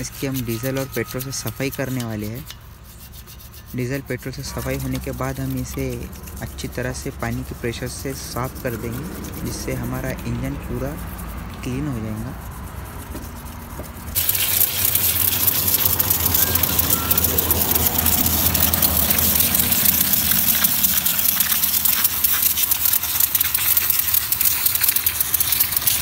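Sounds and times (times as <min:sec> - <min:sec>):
low hum: 0:00.0 - 0:26.0
pressure washer spraying water: 0:14.0 - 0:26.0.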